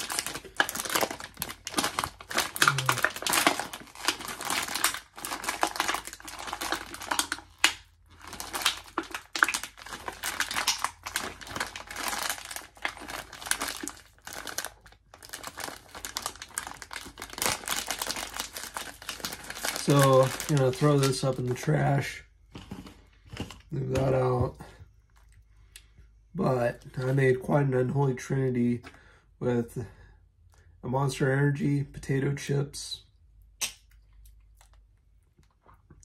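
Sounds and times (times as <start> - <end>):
chip bag crinkling: 0.0 - 24.0.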